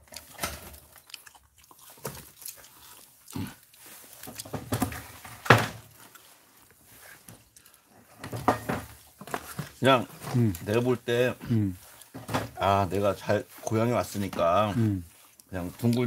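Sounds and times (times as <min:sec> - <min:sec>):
chewing: 0:00.0 - 0:05.2, 0:05.8 - 0:08.2, 0:08.9 - 0:16.0
paper and foil rustling: 0:08.5 - 0:16.0.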